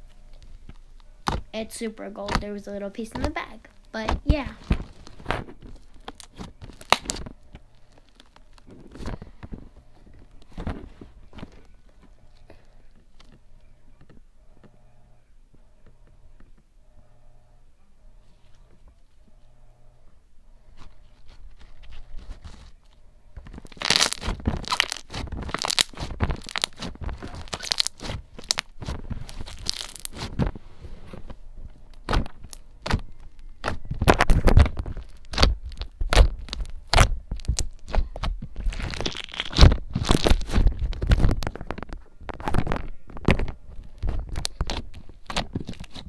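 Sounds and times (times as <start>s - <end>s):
slime wet pops and crackles: 6.0s - 7.2s, 23.8s - 28.6s.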